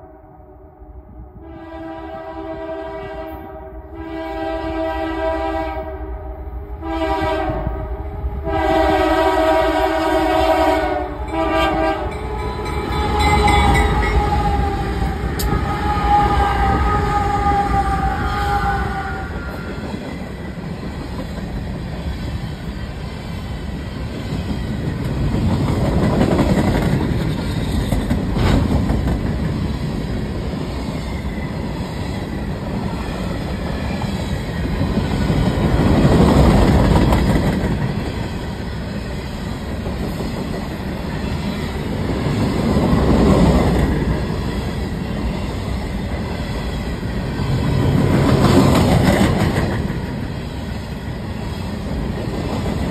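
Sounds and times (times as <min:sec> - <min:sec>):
freight train wheels rumbling: 0:01.3 - 0:52.9.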